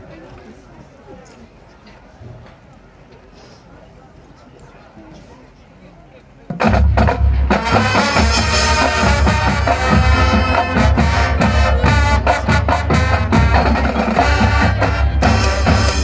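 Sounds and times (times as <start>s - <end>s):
marching band playing: 6.5s - 16.0s.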